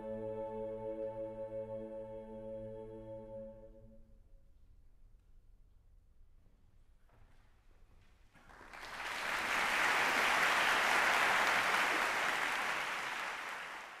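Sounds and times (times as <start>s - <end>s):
audience applauding: 8.4s - 14.0s.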